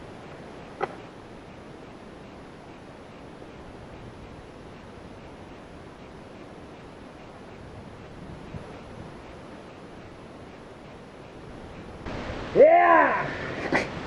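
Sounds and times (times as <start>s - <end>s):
wind rushing over microphone: 0.0s - 14.0s.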